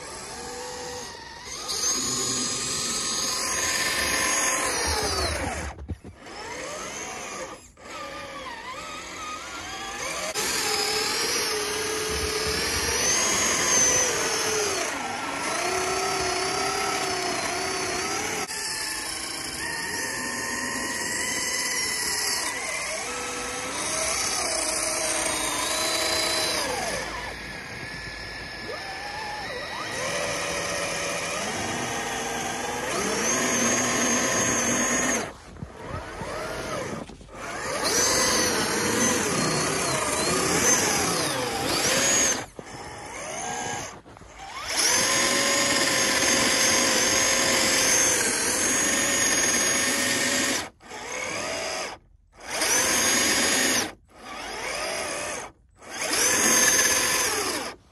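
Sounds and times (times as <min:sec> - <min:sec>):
electric motors whining: 0:00.0 - 0:57.9.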